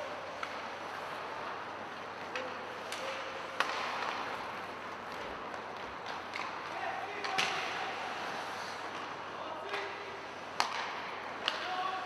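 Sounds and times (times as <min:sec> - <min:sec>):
skate blades scraping ice: 0:00.0 - 0:09.3
hockey sticks and puck clacking: 0:00.0 - 0:12.0.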